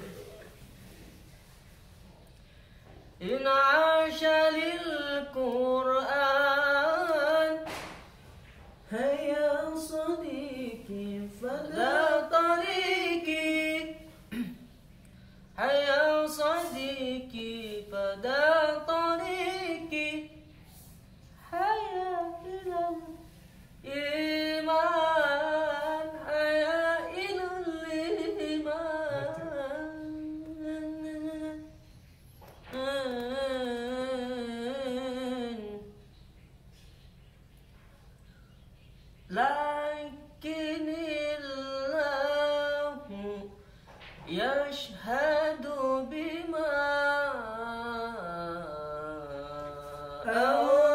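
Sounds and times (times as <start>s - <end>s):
man singing unaccompanied: 3.2s - 7.7s, 8.9s - 14.6s, 15.6s - 20.4s, 21.4s - 23.2s, 23.8s - 31.7s, 32.7s - 35.9s, 39.3s - 43.6s, 44.3s - 50.9s.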